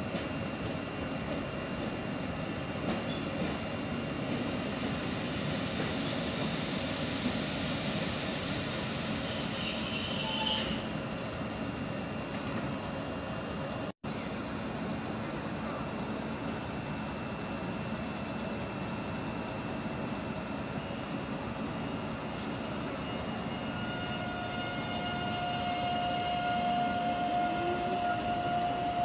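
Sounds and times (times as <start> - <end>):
high-pitched brake squeal: 7.5 - 11.2, 22.4 - 29.0
electric train running: 14.2 - 29.0.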